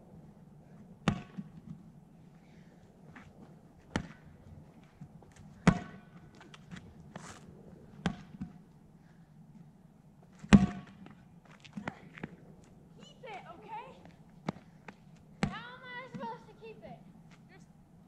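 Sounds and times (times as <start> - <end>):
ball smacks on pavement: 1.0 - 1.8, 3.9 - 4.2, 5.6 - 6.8, 8.0 - 8.6, 10.4 - 12.4.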